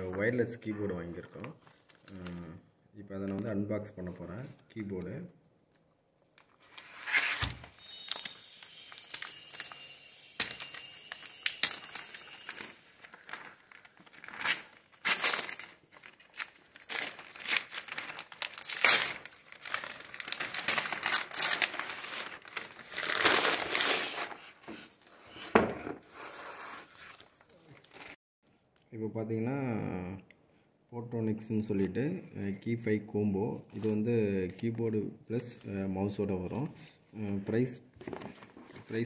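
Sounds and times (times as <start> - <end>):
paper bag tearing and crinkling: 6.8 - 24.5.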